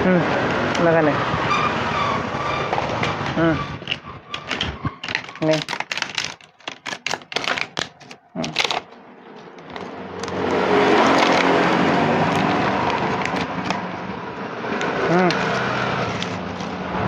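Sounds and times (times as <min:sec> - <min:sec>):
vehicle engine: 0:00.0 - 0:17.0
crackles and clicks: 0:02.8 - 0:14.0, 0:14.8 - 0:17.0.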